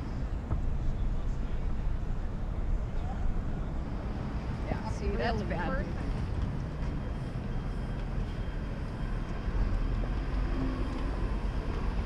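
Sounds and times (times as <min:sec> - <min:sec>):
city street traffic rumble: 0:00.0 - 0:12.0.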